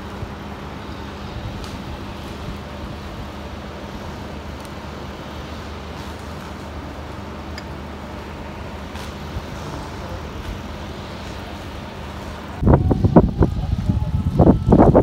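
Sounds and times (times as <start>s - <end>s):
steam locomotive hissing: 8.2s - 13.8s.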